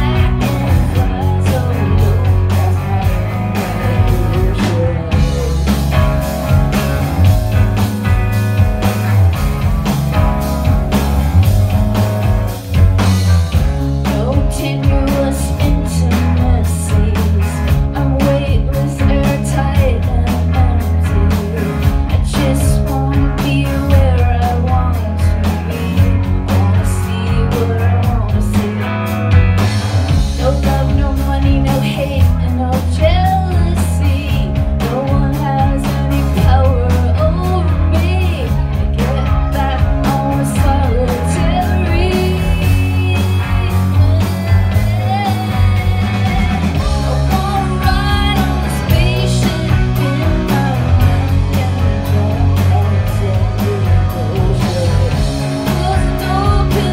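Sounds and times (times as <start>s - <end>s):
woman singing: 0.0s - 7.6s, 13.5s - 56.9s
live rock band playing: 0.0s - 56.9s.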